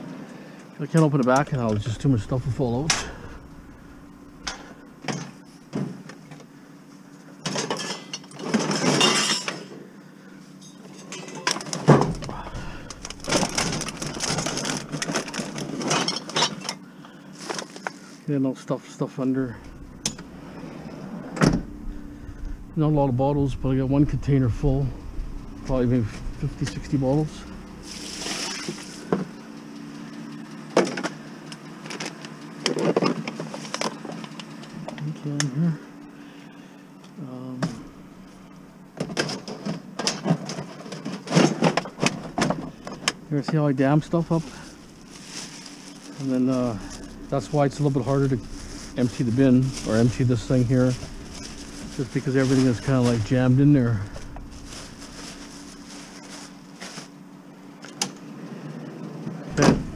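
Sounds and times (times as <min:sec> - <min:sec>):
low hum: 0:01.3 - 0:05.6, 0:11.2 - 0:16.3, 0:19.2 - 0:30.7, 0:35.8 - 0:39.0, 0:41.6 - 0:57.8, 0:59.3 - 0:59.9
bags rustling: 0:01.8 - 0:05.5, 0:11.3 - 0:18.3, 0:19.4 - 0:29.1, 0:41.4 - 0:57.4, 0:59.5 - 0:59.9
clattering: 0:11.0 - 0:16.8.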